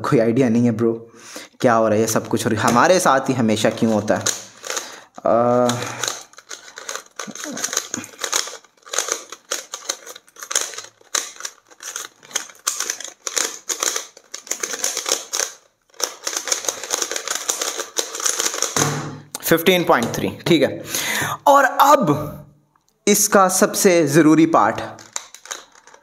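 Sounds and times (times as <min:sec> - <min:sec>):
puzzle cube clicking: 0:02.0 - 0:20.0, 0:25.0 - 0:26.0.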